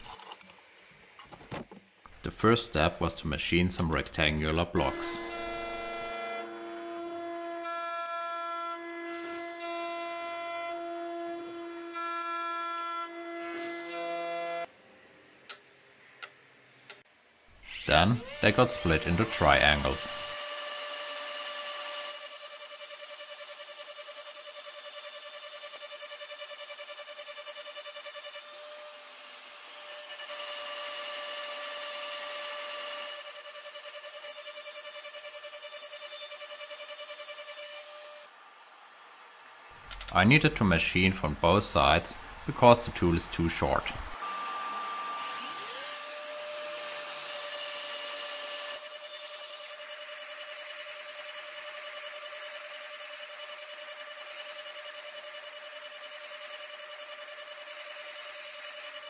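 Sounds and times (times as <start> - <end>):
end mill cutting whine: 4.8 - 7.6, 17.6 - 22.0
milling machine motor whine: 4.8 - 7.7, 17.7 - 25.1.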